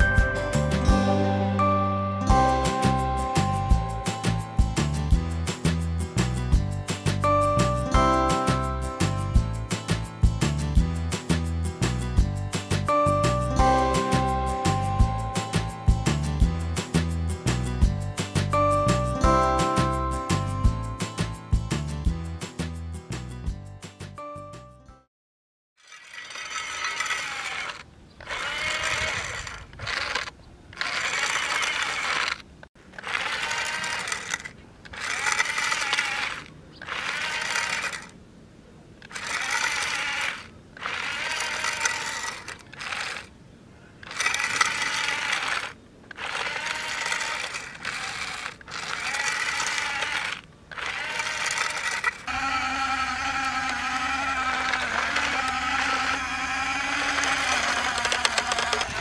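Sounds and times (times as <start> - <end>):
toy motors and gears whining: 25.8 - 38.2, 39.0 - 43.3, 44.0 - 59.0.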